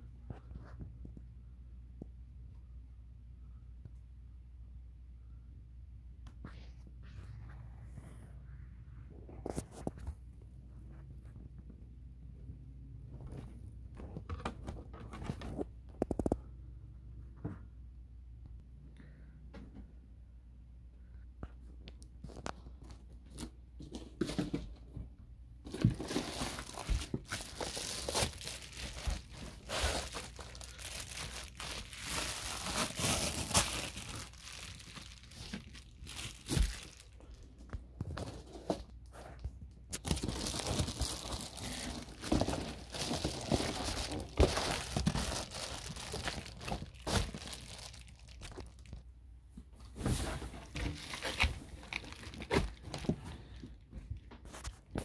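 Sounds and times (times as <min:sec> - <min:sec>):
foil insulation crinkling: 0:25.8 - 0:37.4, 0:40.0 - 0:49.0, 0:50.7 - 0:53.2.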